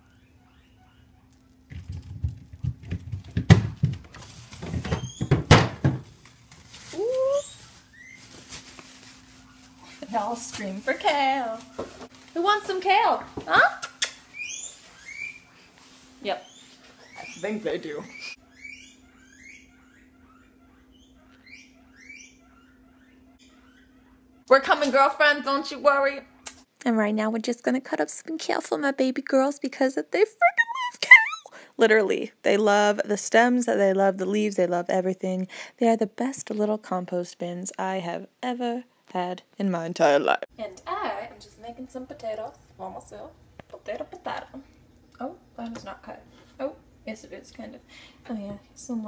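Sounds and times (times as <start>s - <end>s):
guinea pigs squealing: 0.0s - 1.6s, 7.3s - 8.2s, 13.9s - 15.6s, 16.2s - 24.4s
plastic bags rustling: 3.9s - 13.2s, 15.6s - 16.5s.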